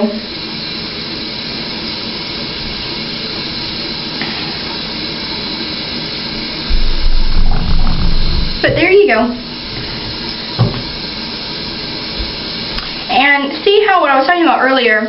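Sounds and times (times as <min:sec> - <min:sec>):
low rumble: 0:06.7 - 0:09.8.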